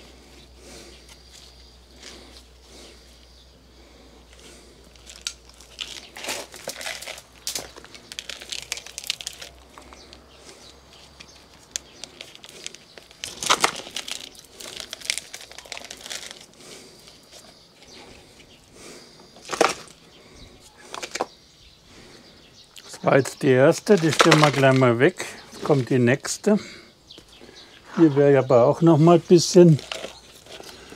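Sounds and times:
potting soil rustling: 0.0 - 21.4, 22.8 - 30.9
plastic plant pot handled: 5.0 - 10.2, 10.9 - 16.5, 19.4 - 20.0, 20.7 - 21.3, 23.7 - 24.9, 29.1 - 30.9.

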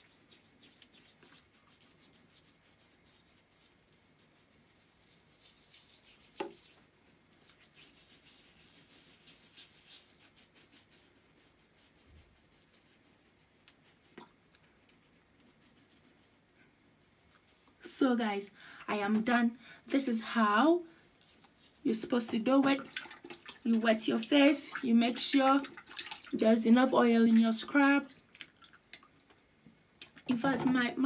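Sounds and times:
fingertips rubbing scrub on skin: 0.0 - 17.9, 21.0 - 25.6.

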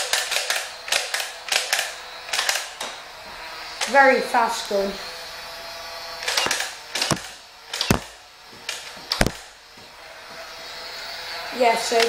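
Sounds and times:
toy blaster shots: 0.0 - 2.7, 6.2 - 9.6.

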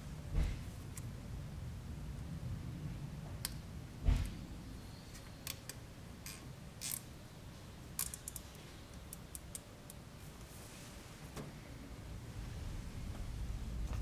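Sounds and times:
plastic connectors clicking: 8.0 - 10.0.

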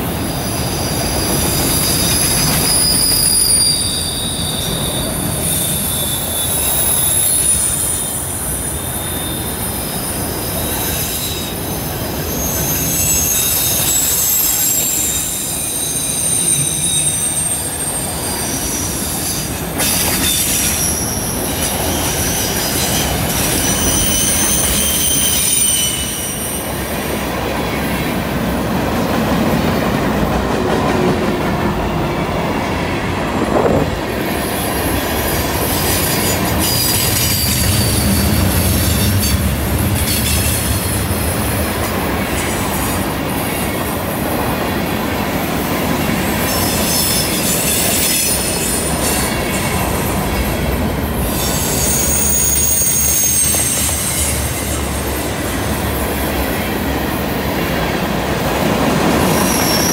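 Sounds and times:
freight train wheels rumbling: 0.0 - 59.9
wheel flanges squealing: 0.3 - 26.8, 34.8 - 41.6, 51.2 - 55.7, 59.2 - 59.9.

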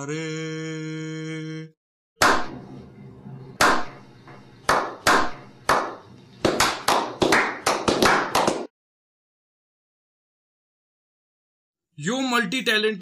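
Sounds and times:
hand claps: 2.2 - 2.5, 3.6 - 3.9, 4.7 - 8.7.

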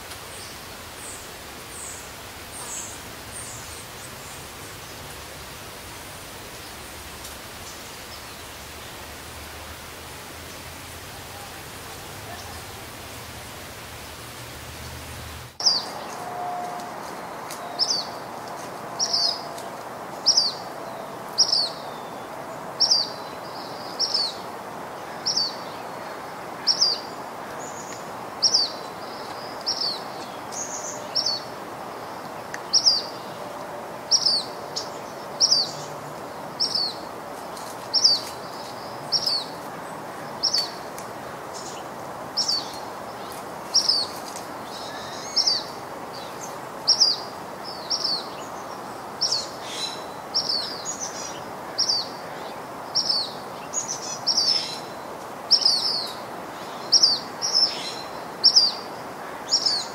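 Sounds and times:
outdoor background hiss: 0.0 - 59.9
bird chirping: 15.6 - 18.2.

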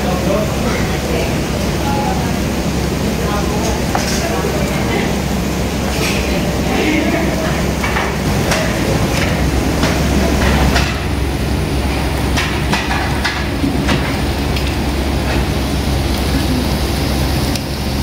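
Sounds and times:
steady low hum: 0.0 - 18.0
tableware clattering: 5.9 - 11.2, 11.9 - 14.2.

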